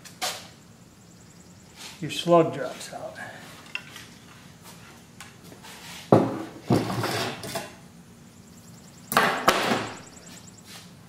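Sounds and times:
sharp clattering knocks: 0:09.1 - 0:10.2.

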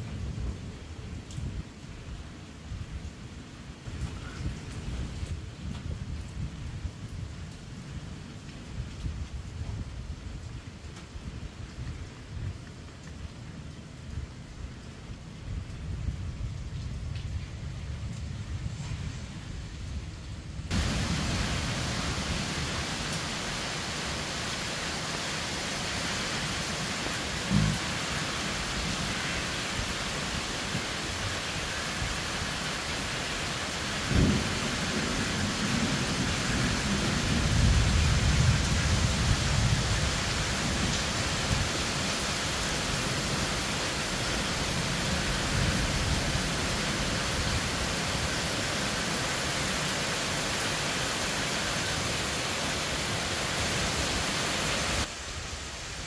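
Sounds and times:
heavy rain hissing: 0:17.7 - 0:56.0
low rumbling thunder: 0:34.0 - 0:40.9
thunder cracks: 0:34.1 - 0:39.7.

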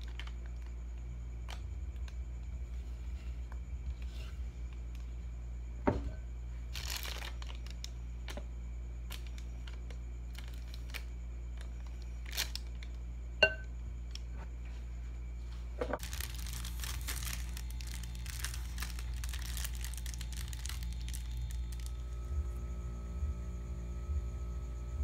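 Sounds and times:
plastic bag crinkling: 0:00.0 - 0:00.8, 0:06.7 - 0:08.4, 0:09.1 - 0:13.0, 0:16.0 - 0:22.2
low hum: 0:08.0 - 0:25.0.

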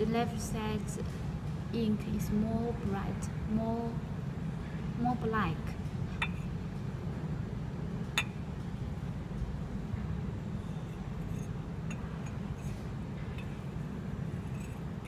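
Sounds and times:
steady low hum: 0:00.0 - 0:15.0
ceramic mugs clinking: 0:06.2 - 0:06.5.

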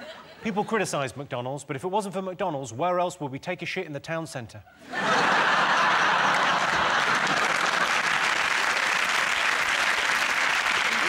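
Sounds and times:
studio audience applauding: 0:05.3 - 0:11.0.

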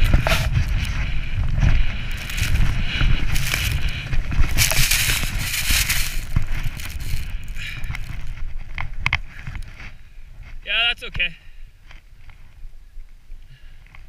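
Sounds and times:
snowboard scraping over snow: 0:00.0 - 0:08.6
wind rumble on microphone: 0:00.0 - 0:14.0.

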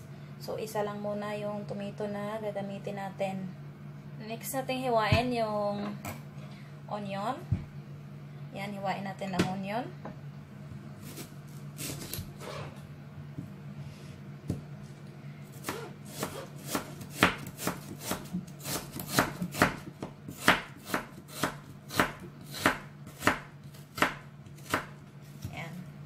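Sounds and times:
knife slicing onion on cutting board: 0:11.0 - 0:12.8, 0:15.5 - 0:25.6.

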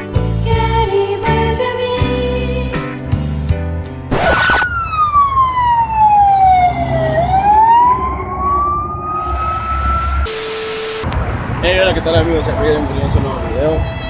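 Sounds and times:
low traffic rumble: 0:03.9 - 0:10.3, 0:11.0 - 0:14.0
ambulance siren wailing: 0:04.1 - 0:11.1.

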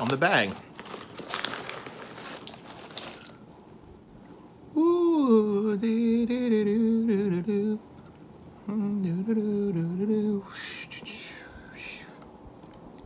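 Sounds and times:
man humming a tune: 0:04.7 - 0:07.8, 0:08.6 - 0:12.2.

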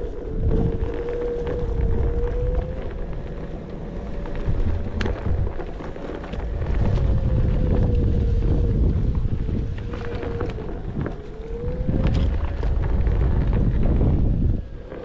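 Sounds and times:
electric motor whining: 0:00.0 - 0:15.0
wind rumble on microphone: 0:00.0 - 0:15.0.

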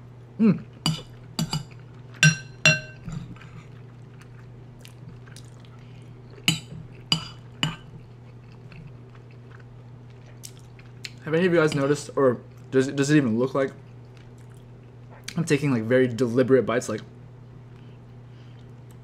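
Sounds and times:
utensil clinking against bowl: 0:00.9 - 0:03.2.

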